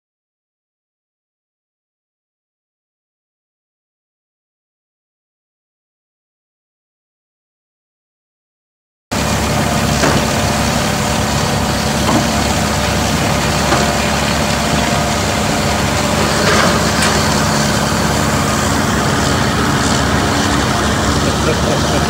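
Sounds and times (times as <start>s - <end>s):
excavator diesel engine running: 9.1s - 22.0s.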